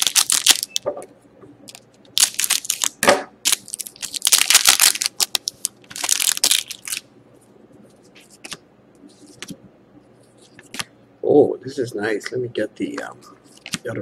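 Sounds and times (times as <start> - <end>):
cards rustling: 0.0 - 0.7, 1.7 - 2.9, 3.5 - 7.0, 8.0 - 9.6, 12.9 - 14.0
foil wrapper crinkling: 0.0 - 0.8, 1.7 - 7.0.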